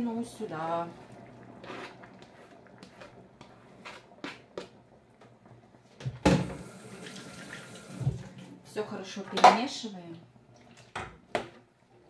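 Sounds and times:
scraping on cutting board: 0:01.6 - 0:04.7.

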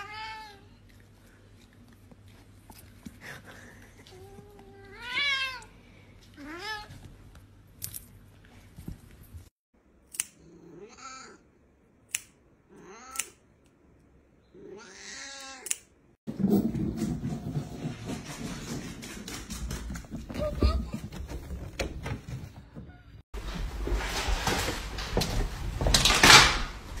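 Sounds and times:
nail clippers clicking: 0:12.1 - 0:12.4, 0:13.1 - 0:13.4, 0:15.6 - 0:15.9.

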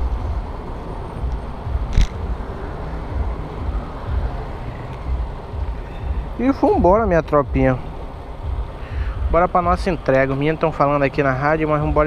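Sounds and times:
low vehicle rumble: 0:00.0 - 0:12.0
sharp click: 0:01.3 - 0:02.2.

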